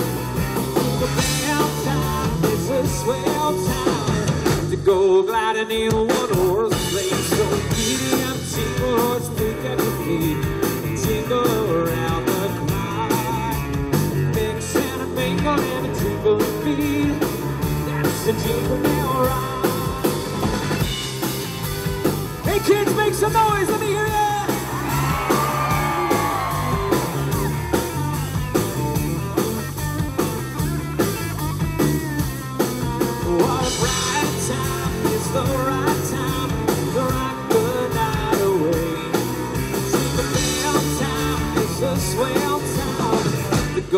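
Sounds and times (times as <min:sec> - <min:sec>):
bass guitar: 0:00.0 - 0:43.9
drum kit beat: 0:00.0 - 0:43.9
electric guitar: 0:00.0 - 0:43.9
person singing into a microphone: 0:01.0 - 0:20.2, 0:33.1 - 0:43.9.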